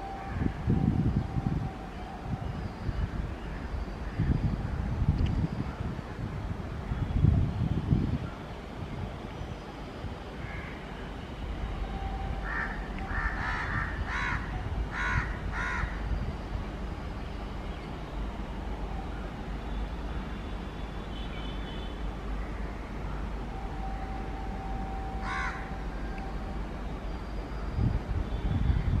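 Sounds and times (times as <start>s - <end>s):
steady low rumble: 0.0s - 21.0s
crows cawing: 10.4s - 10.8s, 12.4s - 16.0s, 25.2s - 25.7s.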